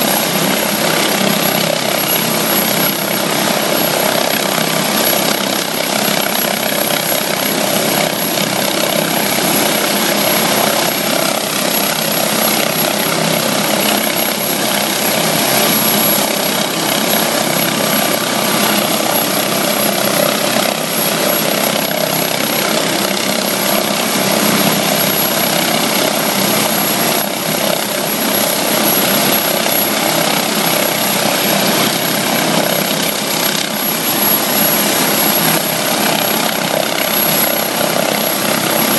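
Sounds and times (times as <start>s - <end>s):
helicopter rotor noise: 0.0s - 38.9s
helicopter turbine whine: 0.0s - 38.9s.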